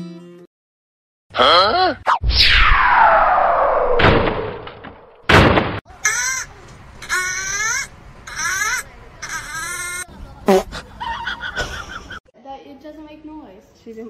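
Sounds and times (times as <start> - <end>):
falling whistle-like glide: 2.1 - 4.6
loud bang: 2.1 - 5.8
thump: 4.0 - 5.8.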